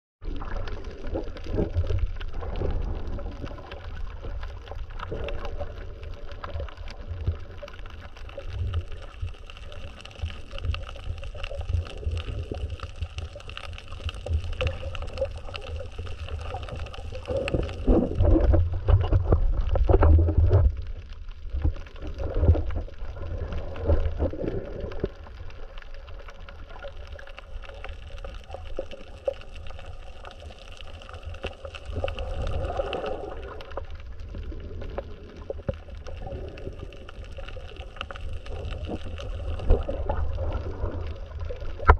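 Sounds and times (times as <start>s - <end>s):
underwater rumble and gurgling: 0.2s - 41.9s.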